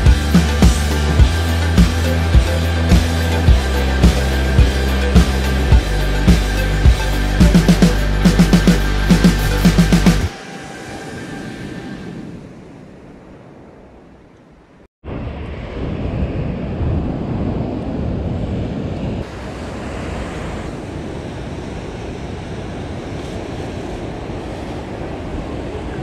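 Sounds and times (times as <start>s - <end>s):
wind rumbling on microphone: 10.3s - 26.0s.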